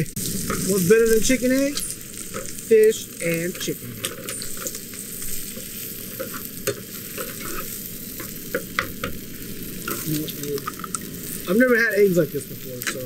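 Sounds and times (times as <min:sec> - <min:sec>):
eggs sizzling in frying pan: 0:00.0 - 0:13.0
metal spatula scraping pan: 0:03.5 - 0:09.2.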